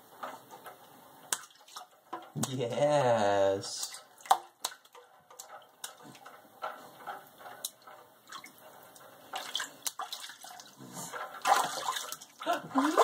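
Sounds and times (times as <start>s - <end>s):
baby splashing water in a sink: 1.2s - 13.0s.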